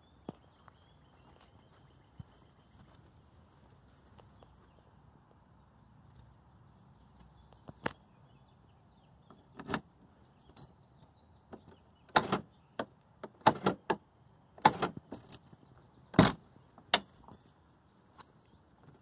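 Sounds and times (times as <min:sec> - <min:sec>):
central locking clicks and clunks: 0:12.1 - 0:14.0, 0:14.6 - 0:15.0.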